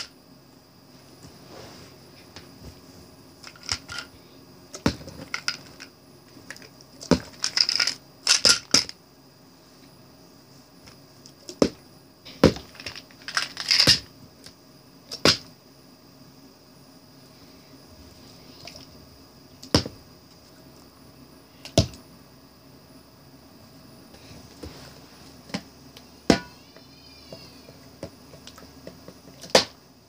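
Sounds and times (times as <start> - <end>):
plastic bottles knocking and clattering: 12.4 - 14.1.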